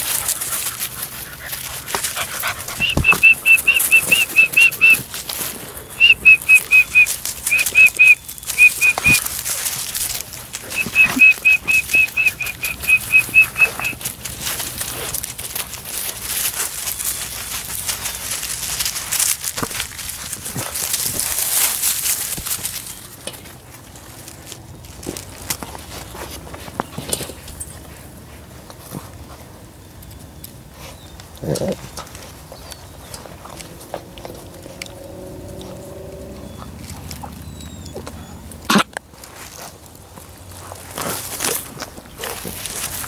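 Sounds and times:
puppy yipping: 0:02.4 - 0:05.1, 0:06.0 - 0:09.2, 0:10.7 - 0:14.0.

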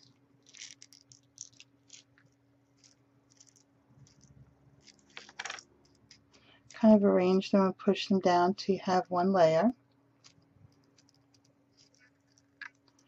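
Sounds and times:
beads clicking and rattling: 0:00.0 - 0:06.8, 0:10.2 - 0:13.0.

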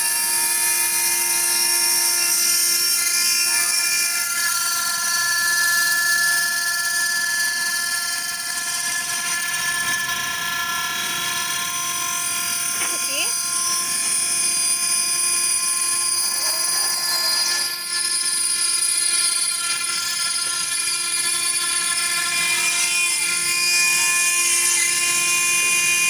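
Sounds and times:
engraving machine spindle whine: 0:00.0 - 0:26.0
bit cutting stone hiss: 0:11.6 - 0:22.6.

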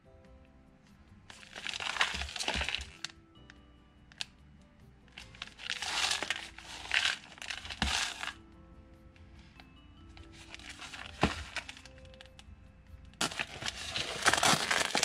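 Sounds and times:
soft background music: 0:00.0 - 0:15.0
plastic wrap crinkling: 0:01.3 - 0:03.2, 0:05.2 - 0:08.4, 0:10.2 - 0:12.4, 0:13.2 - 0:15.0.

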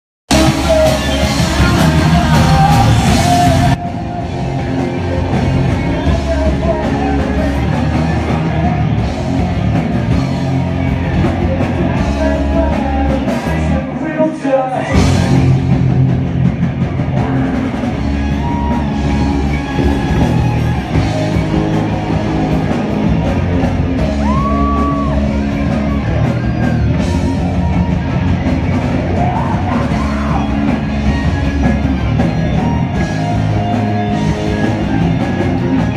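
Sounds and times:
man singing: 0:00.3 - 0:15.8, 0:29.0 - 0:31.9
drum kit: 0:00.3 - 0:35.9
electric guitar: 0:00.3 - 0:35.9.

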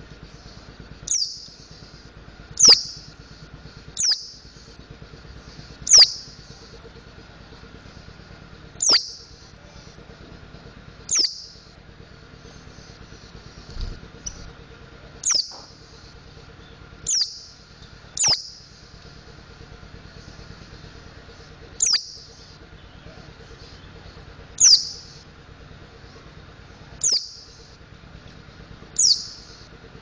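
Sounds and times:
bird high call notes: 0:01.1 - 0:02.0, 0:02.6 - 0:03.1, 0:04.0 - 0:04.6, 0:05.4 - 0:06.6, 0:08.8 - 0:09.9, 0:11.1 - 0:11.6, 0:15.2 - 0:16.0, 0:16.6 - 0:17.6, 0:18.2 - 0:18.8, 0:21.4 - 0:25.2, 0:27.0 - 0:27.7, 0:29.0 - 0:29.6.

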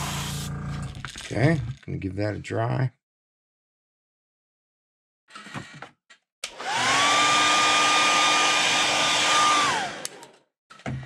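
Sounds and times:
hair dryer blowing: 0:06.4 - 0:10.3
hair dryer switch click: 0:09.9 - 0:10.3.

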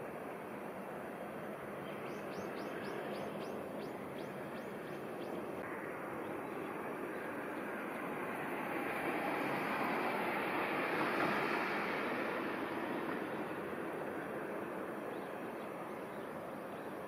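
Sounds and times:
bird chirping: 0:01.8 - 0:05.4.

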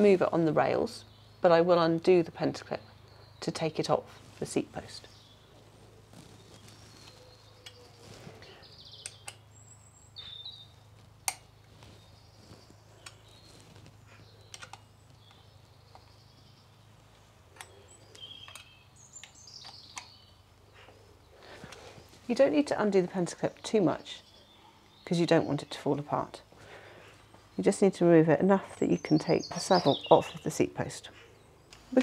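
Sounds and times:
birds chirping: 0:00.0 - 0:32.0.

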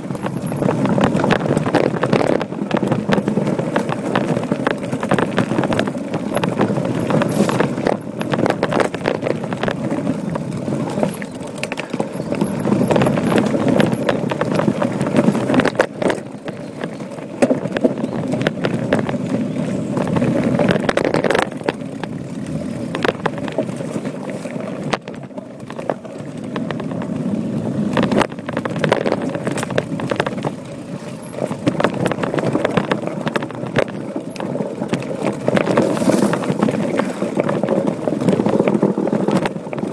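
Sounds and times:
wind on microphone: 0:00.0 - 0:25.0
bike rattling over stones: 0:00.0 - 0:39.9
bike tyres rolling on dirt: 0:00.0 - 0:39.9.

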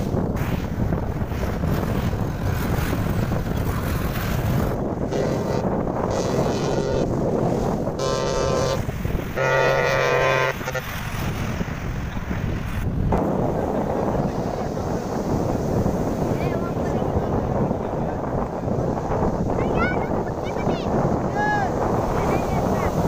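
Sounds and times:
breaking surf: 0:00.0 - 0:23.0
wind buffeting microphone: 0:00.0 - 0:23.0
horn blasts: 0:05.0 - 0:07.1, 0:08.0 - 0:11.0.

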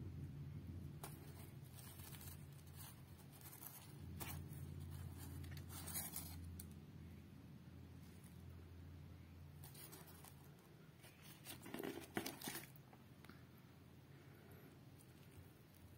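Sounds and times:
low steady hum: 0:00.0 - 0:15.9
paper and cardboard rustling: 0:01.0 - 0:06.7, 0:09.6 - 0:12.8.

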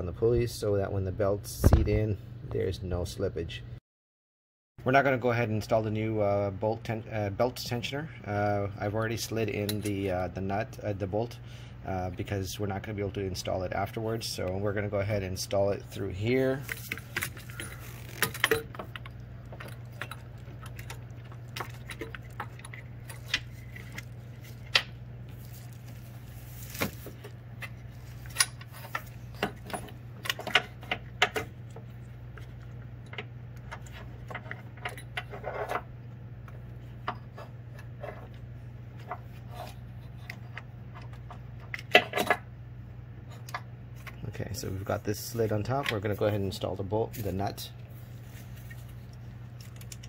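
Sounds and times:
steady low hum: 0:04.8 - 0:50.0.

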